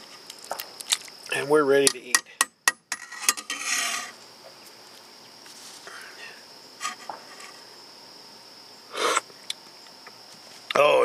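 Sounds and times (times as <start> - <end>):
background hiss: 0.0 - 11.0
faint high-pitched whine: 0.0 - 11.0
scrape or clatter: 2.9 - 4.2.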